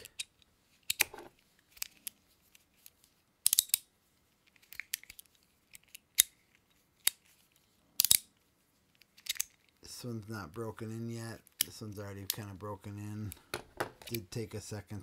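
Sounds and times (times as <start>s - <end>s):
metallic ratchet clicks and snaps: 3.4s - 3.9s, 8.0s - 8.3s.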